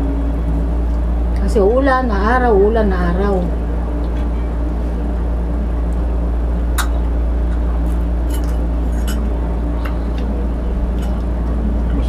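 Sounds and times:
steady low hum: 0.0 - 12.0
spoons clinking against plates: 8.3 - 9.4.

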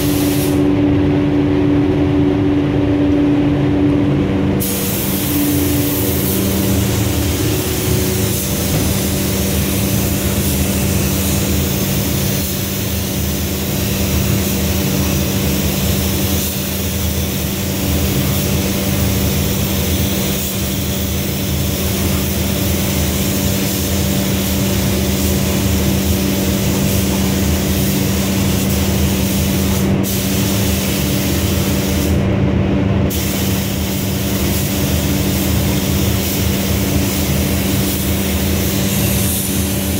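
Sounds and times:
spray gun air hiss: 0.0 - 0.7, 4.6 - 32.2, 33.1 - 39.9
machine hum: 0.0 - 16.2.

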